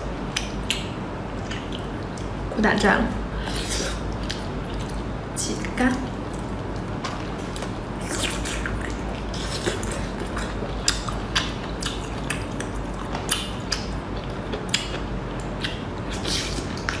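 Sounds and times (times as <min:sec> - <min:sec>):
low steady hum: 0:00.0 - 0:17.0
eating noises: 0:00.3 - 0:02.4, 0:06.1 - 0:17.0.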